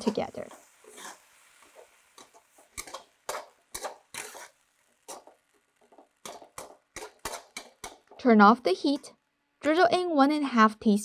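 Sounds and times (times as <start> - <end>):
metal spatula scraping a wok: 0.5 - 5.5, 6.1 - 8.1.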